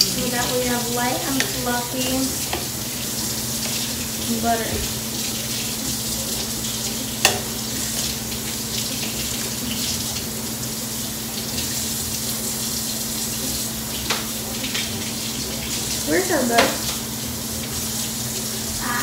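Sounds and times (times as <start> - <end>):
tap running into sink: 0.3 - 5.0, 7.2 - 7.6, 14.0 - 15.0, 15.7 - 17.1.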